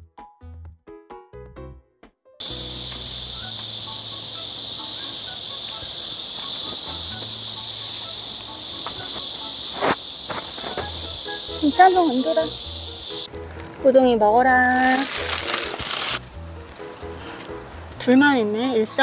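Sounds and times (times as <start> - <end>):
insects buzzing: 2.4 - 13.8, 14.7 - 17.8.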